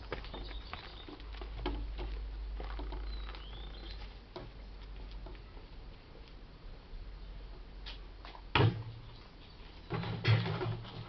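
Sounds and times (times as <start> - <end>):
pattering footsteps on concrete: 0.0 - 6.4.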